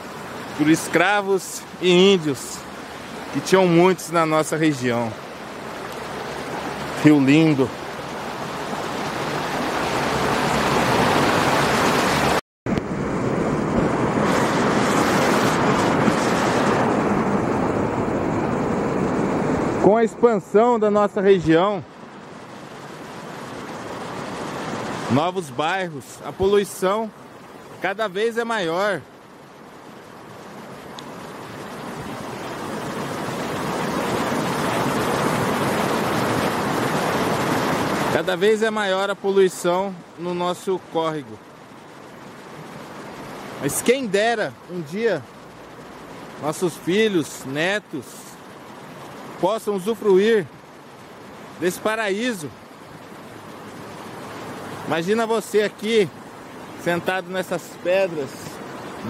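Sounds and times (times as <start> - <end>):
water rushing over rocks: 0.0 - 59.0.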